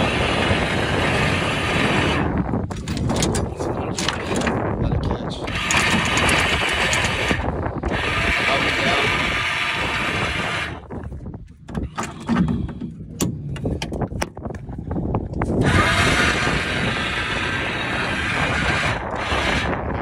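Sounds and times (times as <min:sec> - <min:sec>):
anchor windlass running with chain: 0:00.0 - 0:04.7, 0:05.4 - 0:20.0
scattered clicks and knocks: 0:02.7 - 0:04.6, 0:05.4 - 0:07.4, 0:11.6 - 0:14.7.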